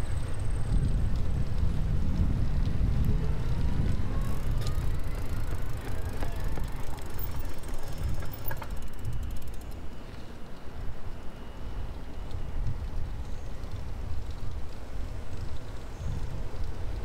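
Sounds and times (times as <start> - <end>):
wind on microphone: 0.0 - 9.3, 12.4 - 17.0
bicycle tyres on pavement: 0.0 - 17.0
freewheel hub ticking: 4.3 - 9.8.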